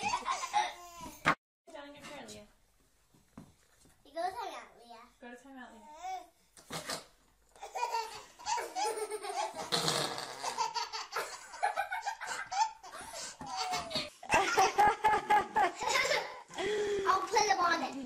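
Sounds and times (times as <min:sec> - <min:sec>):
baby laughing: 0:00.0 - 0:01.1, 0:07.6 - 0:16.4.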